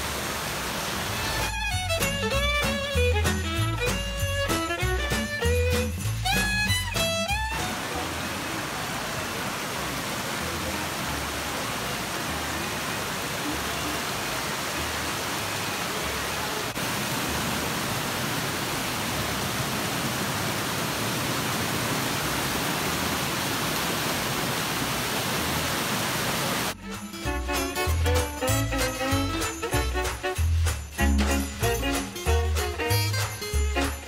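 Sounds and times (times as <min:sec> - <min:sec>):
stream rushing over rocks: 0:00.0 - 0:01.7, 0:07.4 - 0:27.9.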